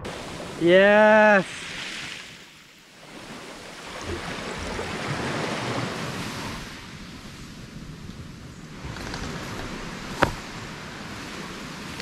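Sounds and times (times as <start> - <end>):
small waves on sandy beach: 0.0 - 12.0.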